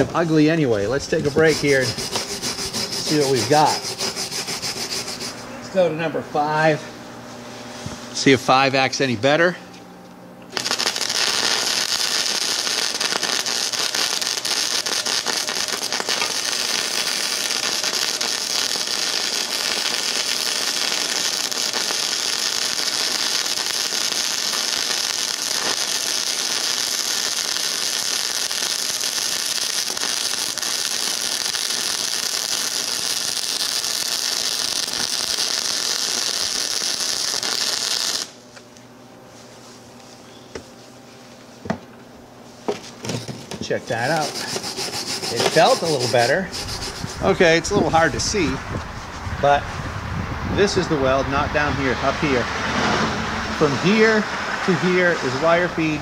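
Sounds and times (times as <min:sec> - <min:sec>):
welding arc crackling sizzle: 0:00.0 - 0:05.2, 0:10.5 - 0:38.6, 0:43.6 - 0:48.7.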